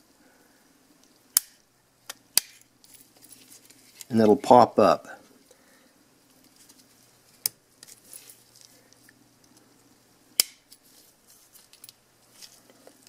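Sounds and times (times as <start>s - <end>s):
sharp plastic snap: 1.3s - 2.6s, 10.4s - 10.6s.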